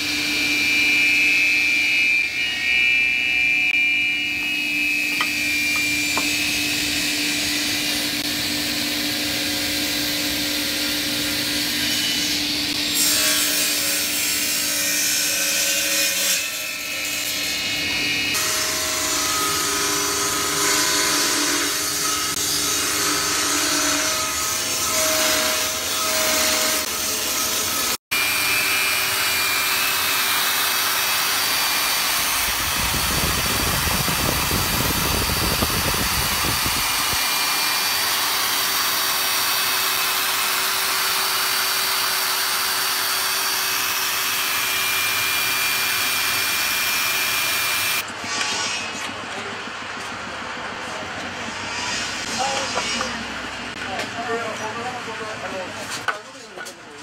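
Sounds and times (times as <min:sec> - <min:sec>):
table saw ripping wood: 0:18.3 - 0:49.0.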